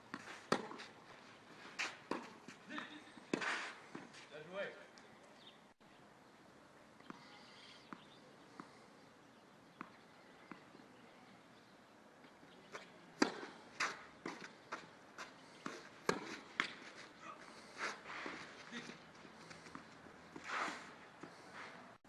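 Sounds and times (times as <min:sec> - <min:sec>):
tennis balls hit and bouncing: 0:00.0 - 0:04.5, 0:07.8 - 0:08.8, 0:09.7 - 0:10.9, 0:12.2 - 0:21.8.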